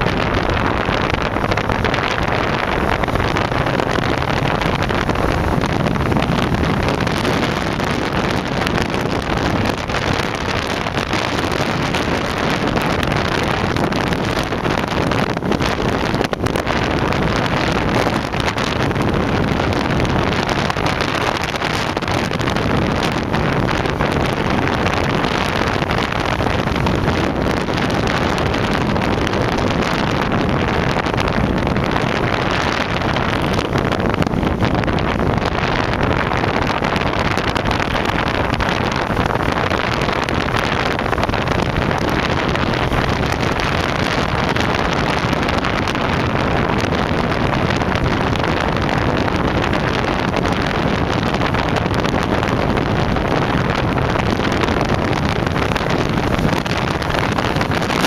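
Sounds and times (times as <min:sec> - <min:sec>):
wind on microphone: 0:00.0 - 0:58.0.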